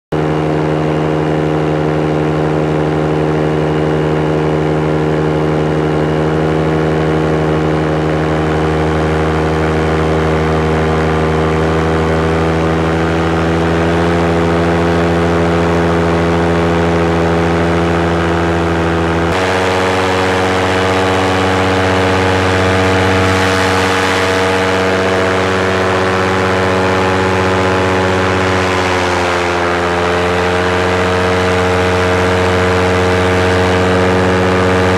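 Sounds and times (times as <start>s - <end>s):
propeller aircraft engine hum: 0.0s - 34.9s.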